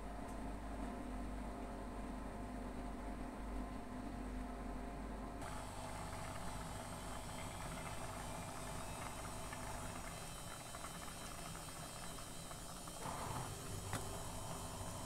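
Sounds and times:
pot of rice bubbling: 5.4 - 15.0.

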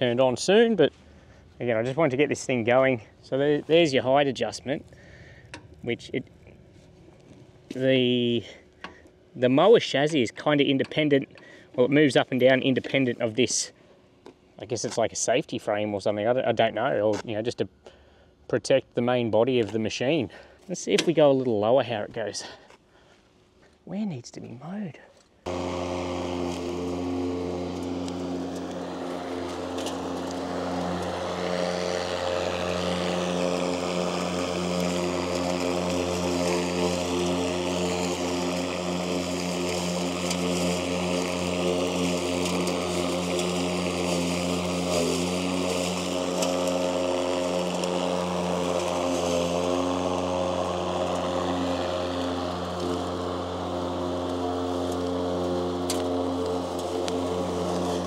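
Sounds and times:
lawn mower cutting grass: 25.4 - 58.0.

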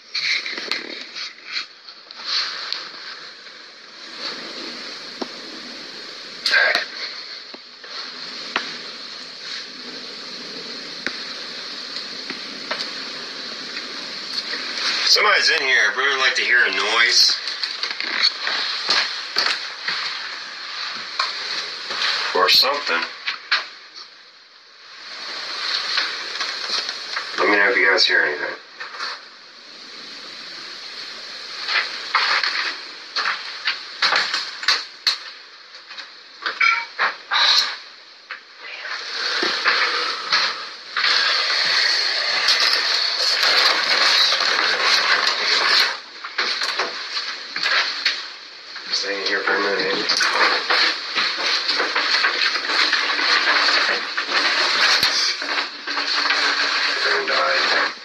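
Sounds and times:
steady background hiss: 0.0 - 58.0
irregular scrapes and knocks: 16.8 - 23.7, 25.0 - 27.6, 31.4 - 35.4, 38.9 - 48.3, 49.0 - 58.0.

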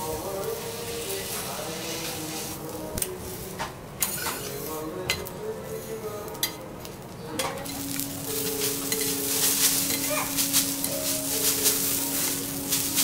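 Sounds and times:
steady sizzle: 0.0 - 13.0
spatulas scraping on griddle: 0.4 - 4.8.

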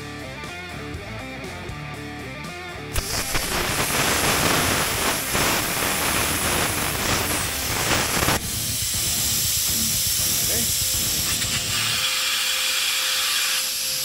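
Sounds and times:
plasma cutter click: 3.0 - 14.0
plasma cutter hiss and crackle: 3.0 - 14.0
torch air flow hiss: 3.0 - 14.0.

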